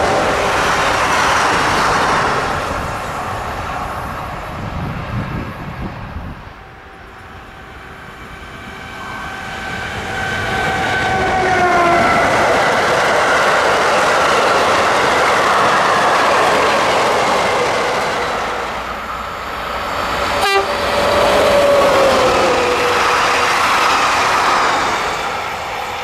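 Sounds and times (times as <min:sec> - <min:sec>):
passing train falling tone: 0:00.0 - 0:26.0
train wagons rolling and rattling: 0:09.3 - 0:26.0.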